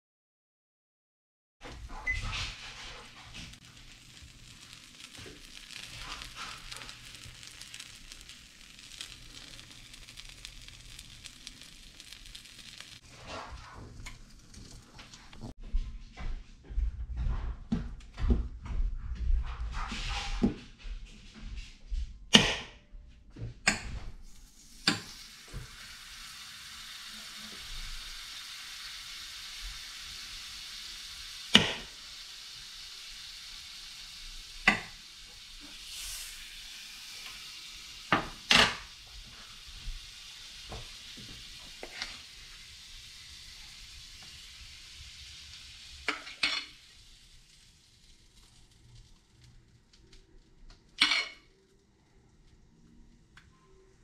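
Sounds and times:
food sizzling in a frying pan: 1.6s - 15.6s, 24.2s - 51.9s.

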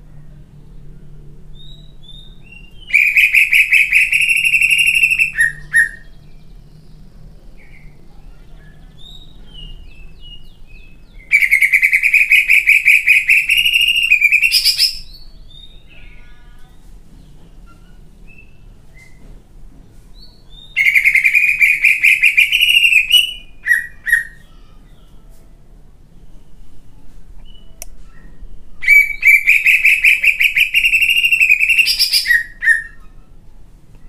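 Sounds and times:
faint bird chirps: 0.9s - 19.3s
bird singing fast repeated notes: 1.6s - 6.6s, 9.0s - 15.9s, 20.5s - 24.5s, 28.8s - 33.0s.

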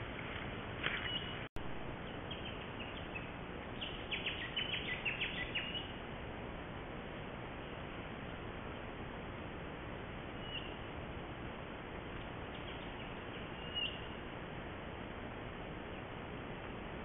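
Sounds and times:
microphone hiss: 0.0s - 17.0s
small bird chirping: 0.9s - 6.0s, 10.4s - 10.9s, 12.2s - 14.2s.

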